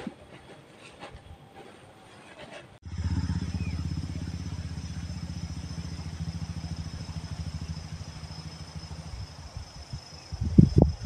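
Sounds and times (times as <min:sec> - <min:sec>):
motor engine running: 0:02.8 - 0:10.8.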